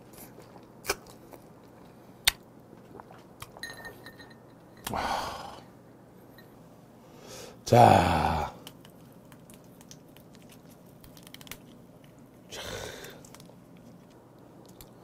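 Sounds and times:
crab shell cracking: 8.6s - 12.3s, 12.9s - 15.0s.

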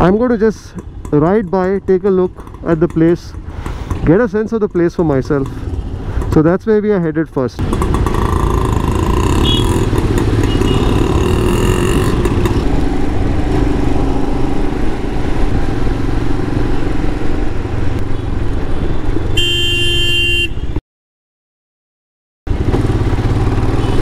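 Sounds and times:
motorcycle engine running: 0.0s - 6.4s, 7.6s - 14.5s, 22.5s - 24.0s
road and wind noise: 0.0s - 20.8s, 22.5s - 24.0s
vehicle horn: 9.3s - 12.0s, 19.4s - 20.8s, 23.8s - 24.0s.

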